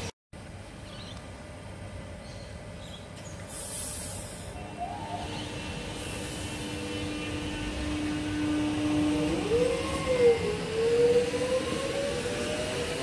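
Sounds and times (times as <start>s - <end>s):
train air hisses: 3.4s - 8.9s
electric motor whine: 4.6s - 13.0s.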